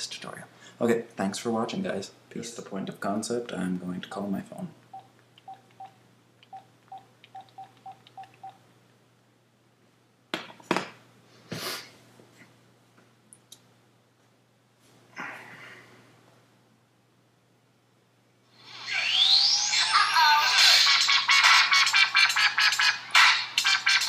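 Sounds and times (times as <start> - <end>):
phone keypad beeps: 5.0 - 8.6.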